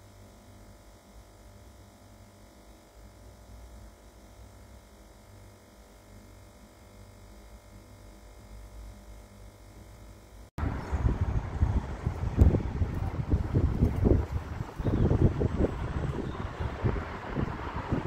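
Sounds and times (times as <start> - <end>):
light hum: 5.2 - 18.0.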